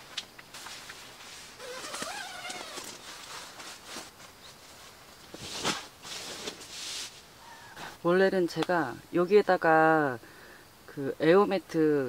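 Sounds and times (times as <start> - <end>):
tent fabric rustling: 0.0 - 7.3.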